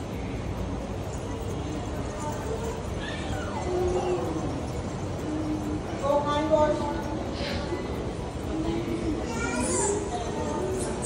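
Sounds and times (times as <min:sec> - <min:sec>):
steady background noise: 0:00.0 - 0:11.0
young child calling out: 0:09.2 - 0:10.1.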